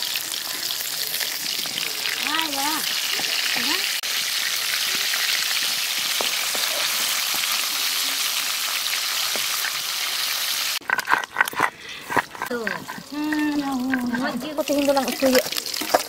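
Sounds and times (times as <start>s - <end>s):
fish sizzling in oil: 0.0s - 10.8s, 12.7s - 16.0s
stone grinding on slab: 10.8s - 14.5s.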